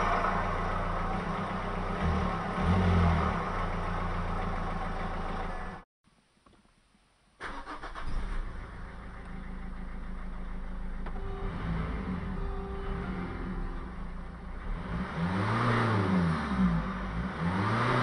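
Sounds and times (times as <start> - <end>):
diesel engine idling: 0.0 - 5.8, 7.5 - 15.6
engine cranking and starting: 7.4 - 12.5.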